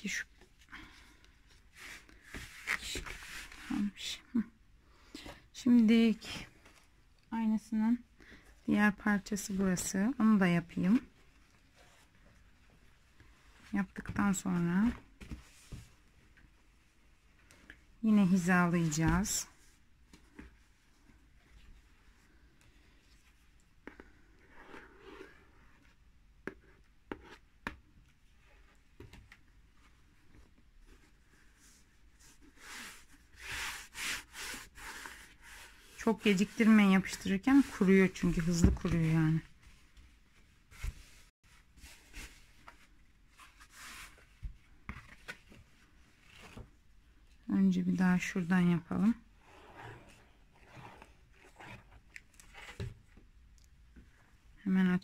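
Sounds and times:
fabric rustling against cardboard: 1.4s - 4.0s, 28.0s - 46.9s.

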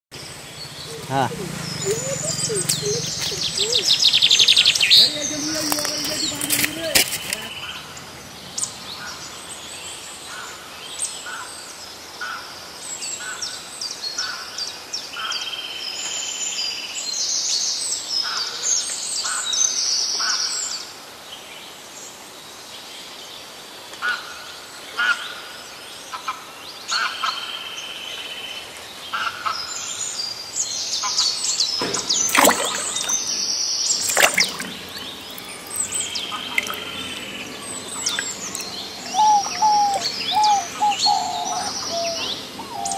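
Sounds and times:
birds chirping and calling: 0.2s - 7.9s, 31.0s - 42.9s.

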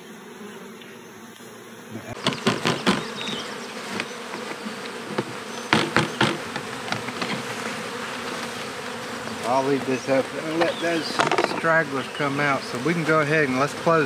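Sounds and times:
honeybee colony buzzing: 0.0s - 14.0s
plastic box knocking against hive: 2.2s - 11.9s.

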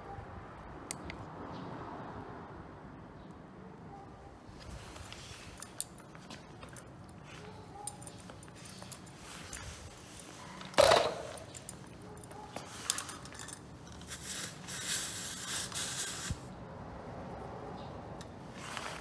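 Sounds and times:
air hissing from a tyre valve: 14.1s - 16.5s.

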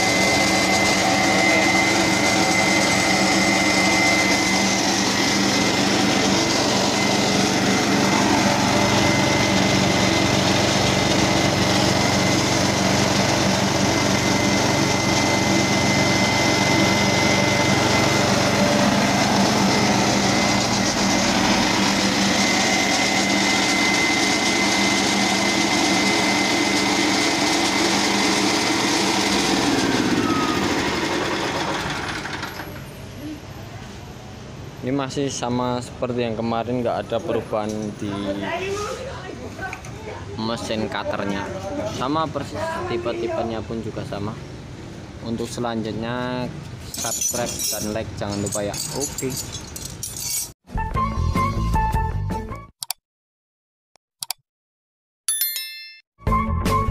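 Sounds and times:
thin steady whine: 0.0s - 31.3s
petrol engine running: 0.0s - 33.1s.

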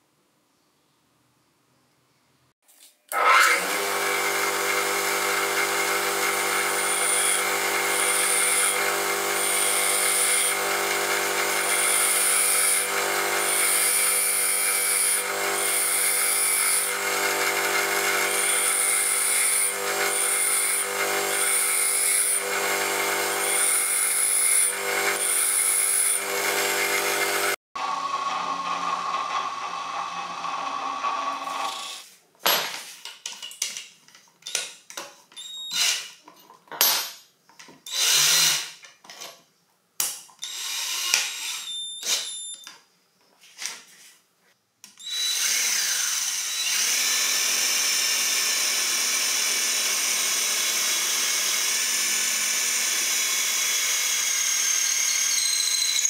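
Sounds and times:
electric grinding motor running: 3.2s - 32.0s.

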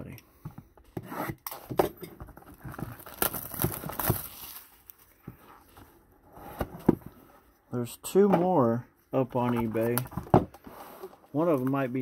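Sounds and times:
shrink-wrap crinkling: 2.4s - 5.2s.

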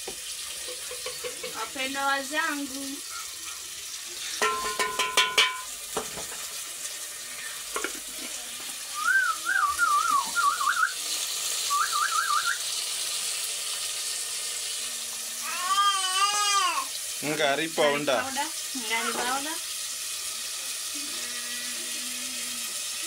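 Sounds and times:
tomatoes sizzling in a pot: 0.0s - 23.0s
short warbling whistles: 9.0s - 11.0s, 11.6s - 12.7s.

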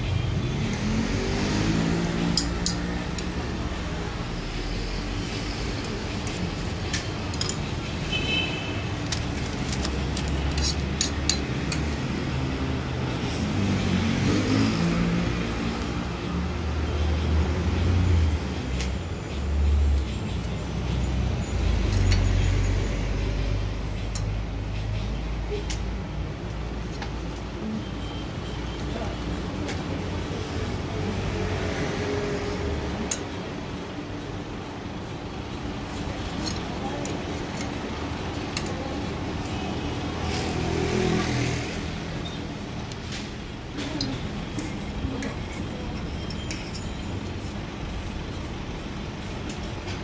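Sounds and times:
street traffic rumbling: 0.0s - 50.0s
tongs clicking on metal moulds: 2.0s - 3.4s, 9.0s - 11.9s.

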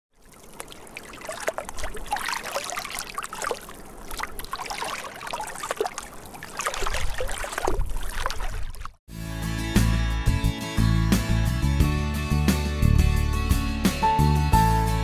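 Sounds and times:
small waves lapping: 0.1s - 9.0s.

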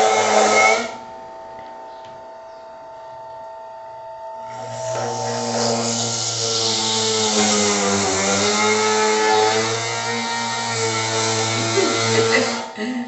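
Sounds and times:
juicer motor hum: 0.0s - 12.9s
fruit grinding against cone: 4.5s - 12.7s.

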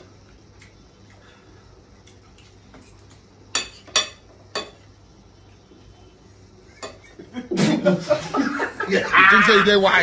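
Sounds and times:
cutlery clinking on a plate: 2.8s - 4.8s.

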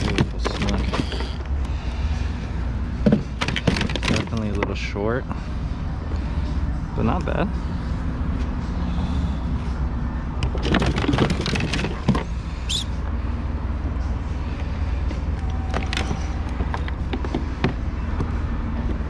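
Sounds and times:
steady low rumble: 1.3s - 3.5s, 4.2s - 19.0s.

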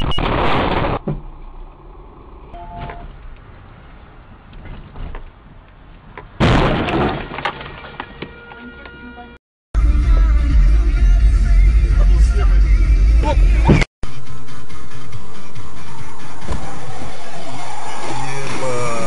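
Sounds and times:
car crash impact: 6.4s - 8.1s.

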